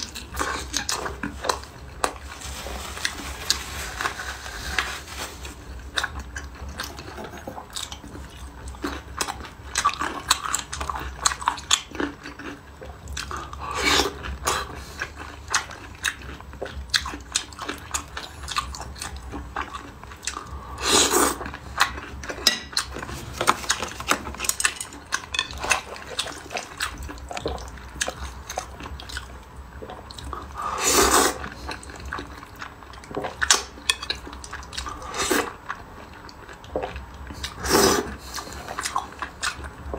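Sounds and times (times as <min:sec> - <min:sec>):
loud slurps: 0:30.6 - 0:31.4, 0:37.6 - 0:38.4.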